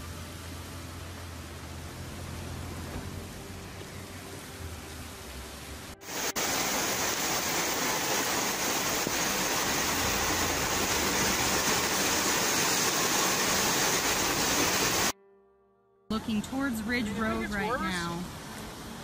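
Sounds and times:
floodwater rushing: 0:00.0 - 0:15.1.

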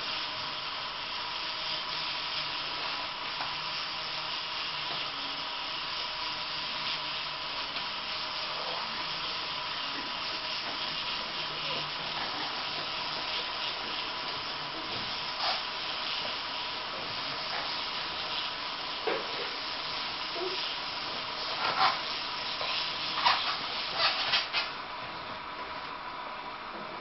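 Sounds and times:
toy train motors whirring: 0:00.0 - 0:24.8
steady hiss: 0:00.0 - 0:27.0
plastic wheels on plastic track: 0:05.8 - 0:24.8.

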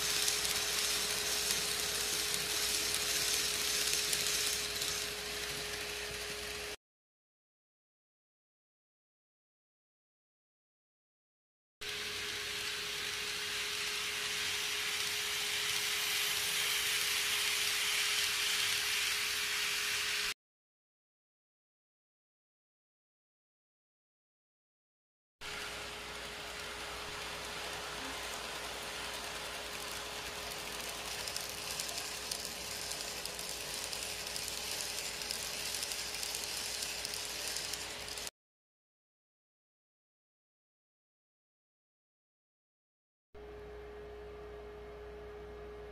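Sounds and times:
train wheels and motor hissing: 0:00.0 - 0:06.8, 0:11.8 - 0:20.4, 0:25.4 - 0:38.3
low steady hum: 0:43.4 - 0:45.9.

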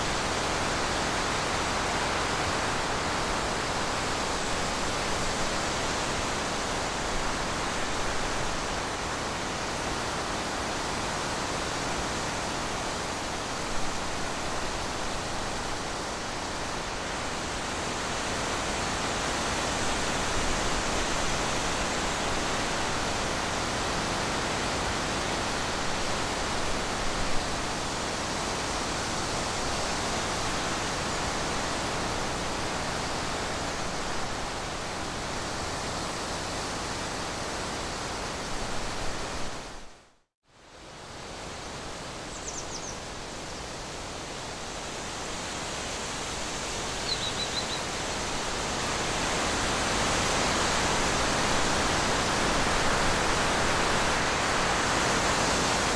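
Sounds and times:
outdoor background hiss: 0:00.0 - 0:55.9
faint high chirps: 0:47.0 - 0:47.9.

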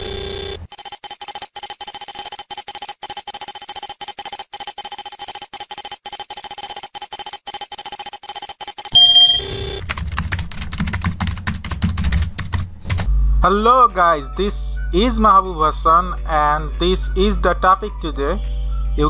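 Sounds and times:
high electronic tones: 0:00.0 - 0:09.8
fast digital clicks: 0:00.0 - 0:09.9
deep bass tone: 0:13.1 - 0:13.9.

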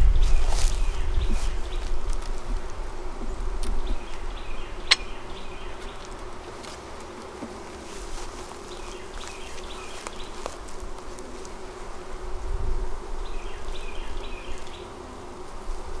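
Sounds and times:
bees humming: 0:00.0 - 0:16.0
hive frame cracking loose: 0:05.8 - 0:07.9.

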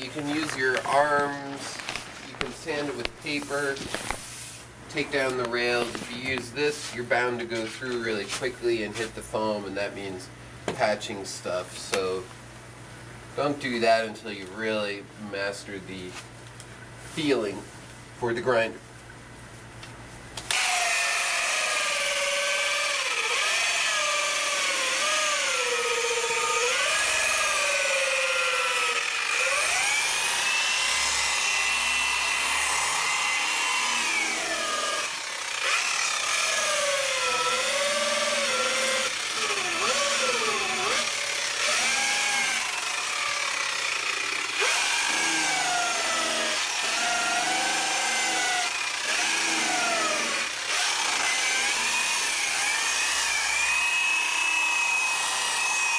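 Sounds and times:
grinder motor whine: 0:20.5 - 0:55.9.

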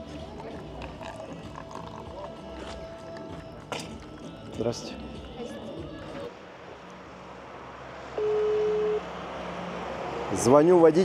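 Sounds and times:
indistinct background voices: 0:00.0 - 0:06.4
faint music: 0:00.0 - 0:07.2.

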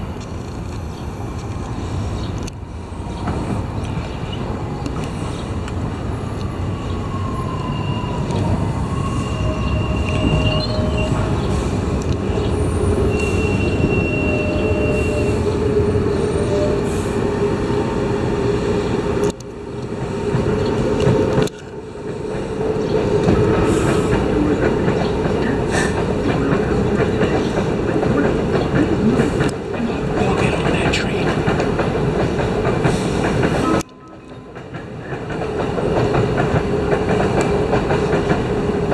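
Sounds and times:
train wheels rumbling on rail: 0:00.0 - 0:38.9
brake squeals: 0:06.8 - 0:15.6
clickety-clack of wheels: 0:19.4 - 0:38.9.

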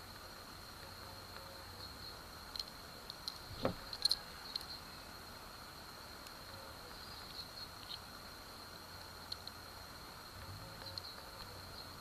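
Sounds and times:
faint high whine: 0:00.0 - 0:12.0
soft knock: 0:03.6 - 0:03.8.

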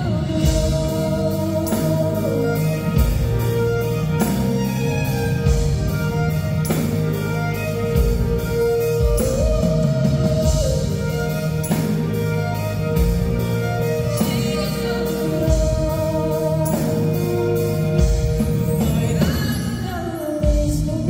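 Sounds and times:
man singing: 0:00.0 - 0:03.3, 0:13.8 - 0:21.0
bass: 0:00.0 - 0:21.0
bowed violin: 0:00.0 - 0:21.0
drums: 0:00.0 - 0:21.0.

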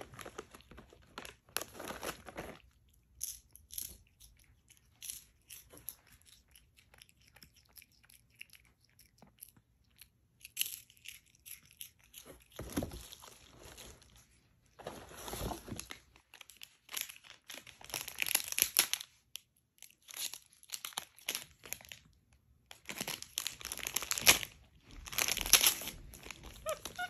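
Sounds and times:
plastic snack bags crinkling: 0:00.0 - 0:03.2, 0:14.8 - 0:27.0.

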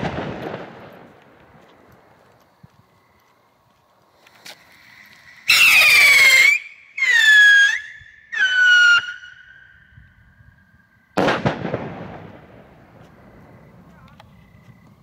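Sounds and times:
whistling rocket: 0:05.1 - 0:10.1.

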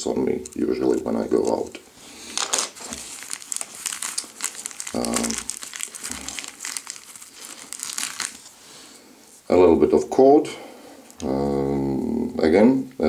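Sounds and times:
plastic wrap crinkling and rustling: 0:00.5 - 0:09.5.

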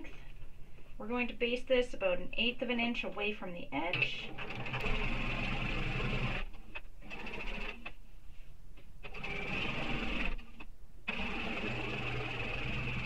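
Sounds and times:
sewing machine stitching: 0:03.9 - 0:07.9, 0:09.0 - 0:13.0.

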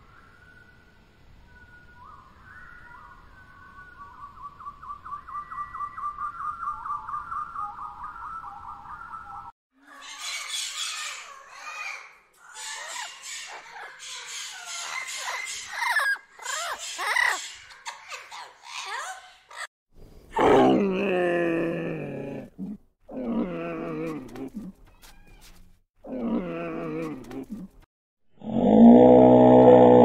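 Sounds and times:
birds chirping: 0:02.0 - 0:20.3.

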